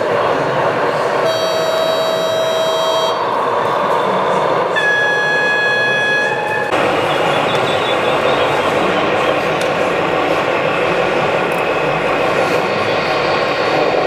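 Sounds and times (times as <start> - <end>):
steady background noise: 0.0 - 14.0
model locomotive horn: 1.2 - 3.3, 4.8 - 6.6.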